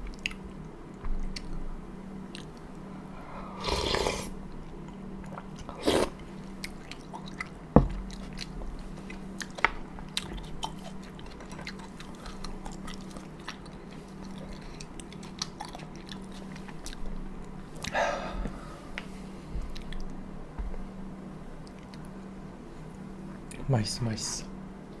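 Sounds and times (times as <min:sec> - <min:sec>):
wet chewing: 0:00.0 - 0:00.6, 0:02.3 - 0:02.8, 0:03.6 - 0:20.2
slurping noodles: 0:03.5 - 0:04.4, 0:05.7 - 0:06.2.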